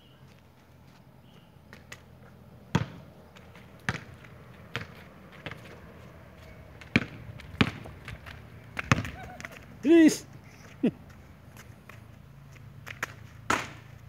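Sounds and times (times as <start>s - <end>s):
basketball hitting hoop: 2.7s - 3.0s, 3.9s - 4.1s, 6.9s - 7.9s, 8.8s - 9.5s
basketball bouncing on concrete: 2.7s - 9.8s.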